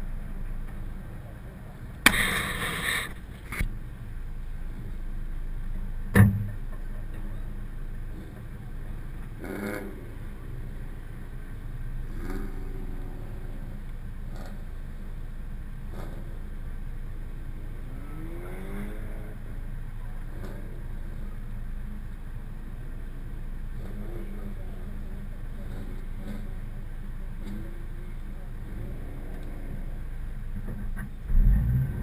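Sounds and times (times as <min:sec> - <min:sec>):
car engine idling: 0:00.0 - 0:32.0
sharp noisy rustle: 0:02.0 - 0:03.7
loud thump: 0:06.1 - 0:06.6.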